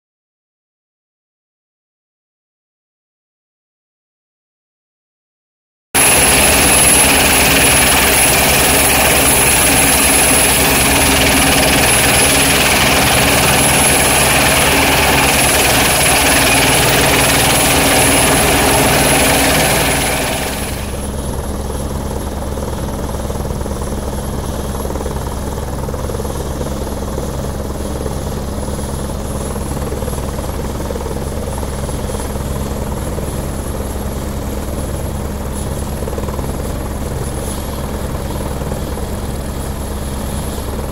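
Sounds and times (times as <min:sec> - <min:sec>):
high thin whine: 0:06.0 - 0:21.1
helicopter rotor beat: 0:06.0 - 0:40.9.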